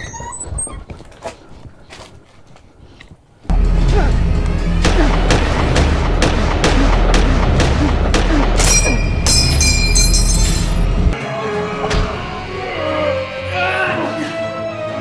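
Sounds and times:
heavy rhythmic hits: 3.5s - 11.1s.

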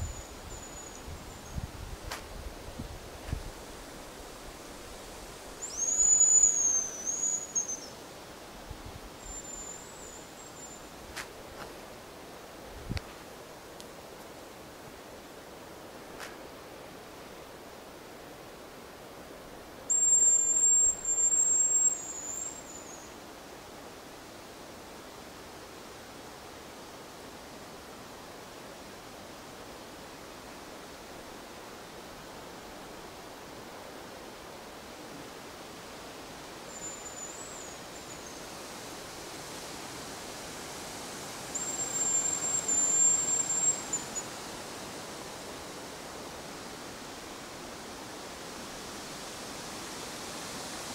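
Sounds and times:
high thin decoy whistle: 5.6s - 7.8s
bird high whistle: 5.6s - 7.9s, 9.2s - 10.8s, 19.9s - 23.1s, 41.6s - 44.3s.

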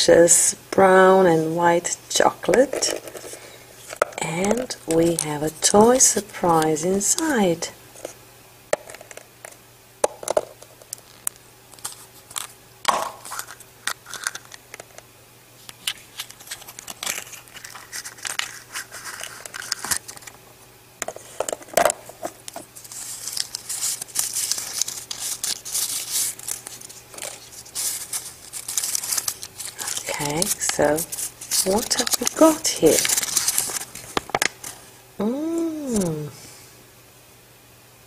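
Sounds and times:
paper wrapping crinkling: 2.9s - 7.4s, 10.9s - 14.6s, 15.6s - 20.4s, 21.2s - 34.9s.

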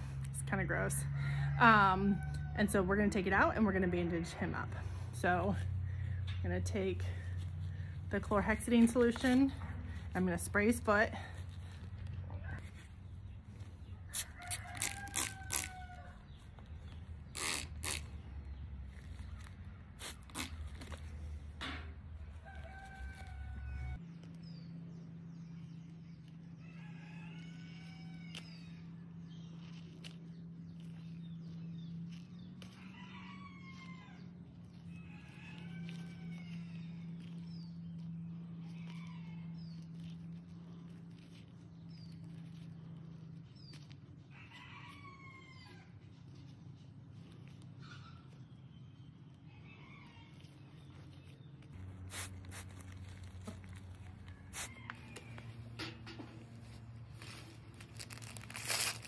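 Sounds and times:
rooster crowing: 22.4s - 24.0s, 32.7s - 34.2s.

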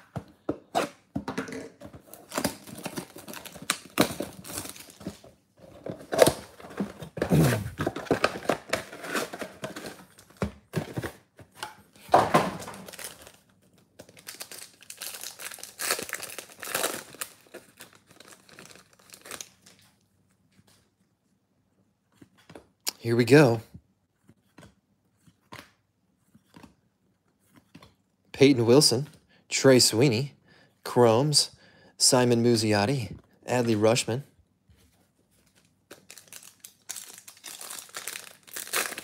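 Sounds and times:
card packs crinkling and tearing: 2.0s - 11.3s, 12.6s - 20.0s, 35.4s - 39.0s
box being torn open: 2.1s - 5.2s, 5.9s - 11.0s.

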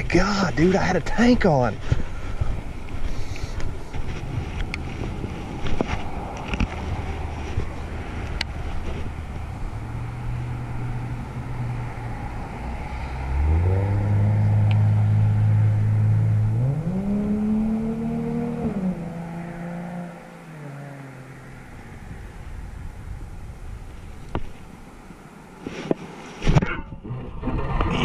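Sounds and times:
vehicle engine accelerating: 3.8s - 23.7s.

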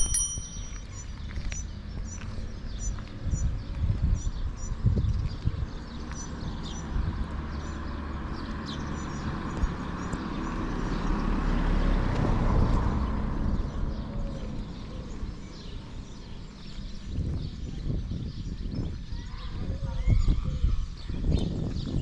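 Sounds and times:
small birds chirping: 0.0s - 11.6s, 12.8s - 22.0s
car passing: 6.4s - 16.0s.

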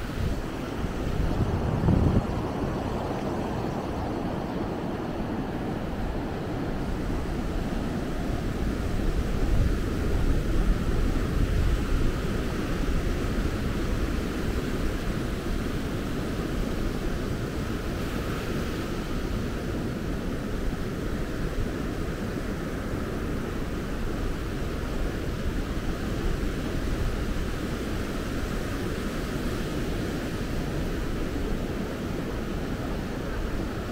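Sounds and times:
wind buffeting microphone: 0.0s - 18.3s.

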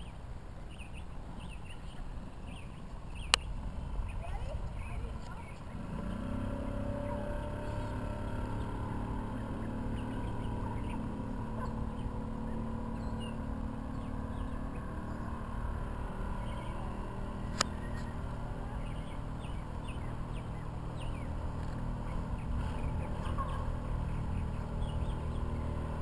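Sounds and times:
distant speedboat engine drone: 0.0s - 26.0s.

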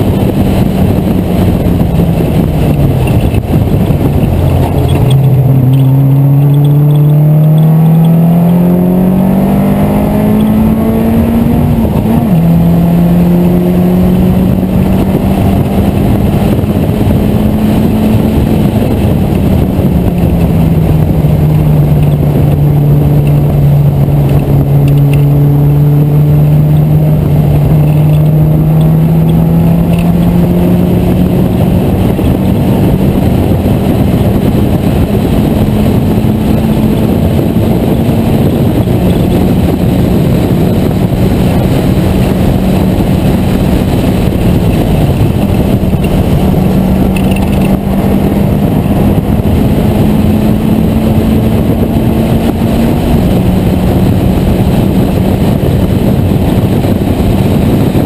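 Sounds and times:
race car engine revving: 0.0s - 58.0s
wind and road rush: 0.0s - 58.0s.

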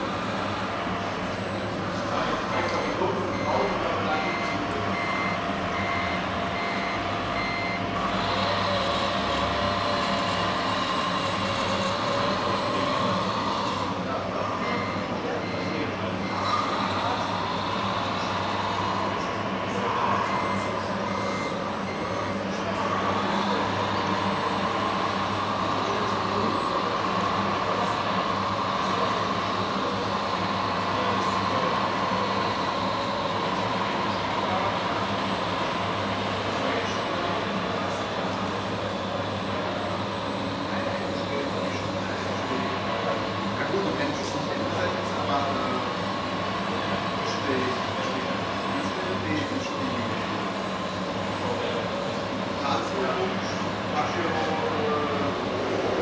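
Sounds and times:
reversing beeper: 2.6s - 8.4s, 54.0s - 56.0s
steady higher whine: 49.2s - 56.0s.

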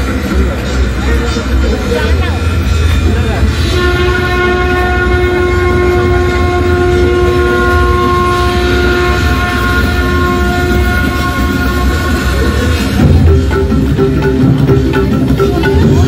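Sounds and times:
long held note: 3.4s - 13.4s.

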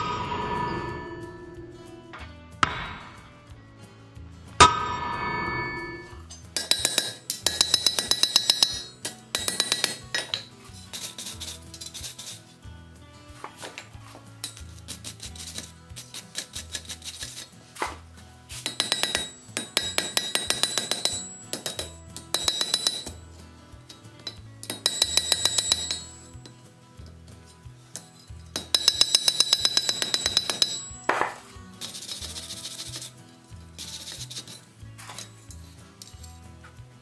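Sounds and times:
hammer striking iron on anvil: 0.0s - 3.5s, 4.6s - 10.5s, 18.6s - 23.2s, 23.9s - 26.5s, 28.0s - 31.5s
wire brush scraping iron: 4.6s - 12.6s, 13.4s - 23.2s, 27.4s - 36.8s.

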